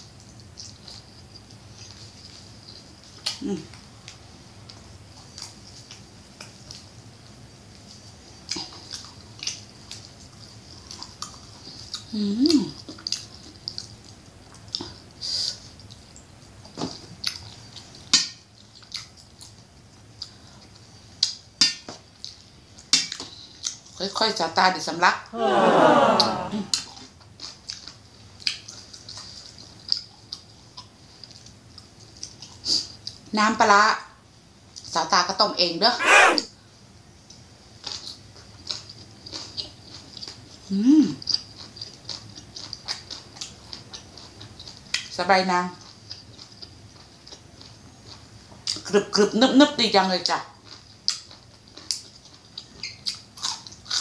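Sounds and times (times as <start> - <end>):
chewing and mouth smacking: 0.2 - 6.9, 7.7 - 24.0, 26.7 - 33.3, 37.8 - 48.9, 50.2 - 54.0
wet mouth clicks and smacks: 12.9 - 14.9, 51.1 - 54.0
person humming: 36.0 - 36.4.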